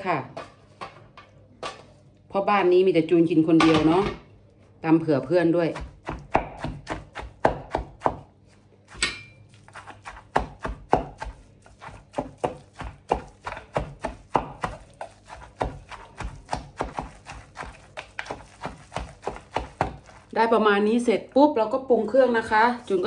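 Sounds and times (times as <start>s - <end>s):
pestle pounding in wooden mortar: 5.6s - 8.3s, 8.9s - 20.5s.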